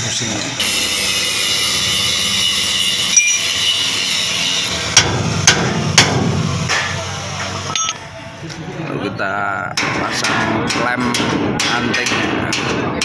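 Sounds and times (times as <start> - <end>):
mechanical hum and hiss: 0.0 - 12.9
sharp metal knocks: 4.9 - 7.0, 9.7 - 13.0.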